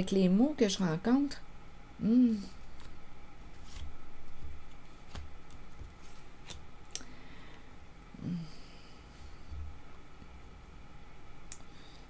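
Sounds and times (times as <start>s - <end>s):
cards rustling: 2.6s - 6.6s.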